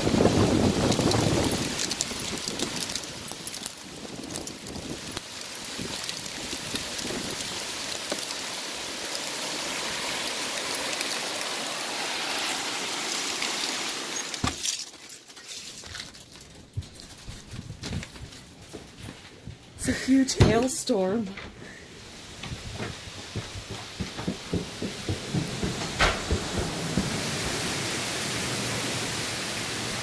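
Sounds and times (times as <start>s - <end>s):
hail and heavy rain: 0.0s - 16.1s, 21.6s - 30.0s
sharp knock: 24.0s - 27.2s.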